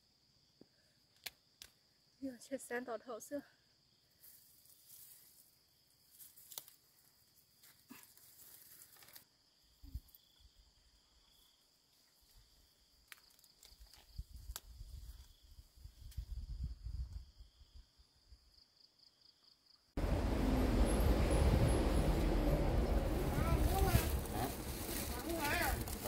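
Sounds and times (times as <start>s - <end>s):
low rumbling: 20.0s - 26.0s.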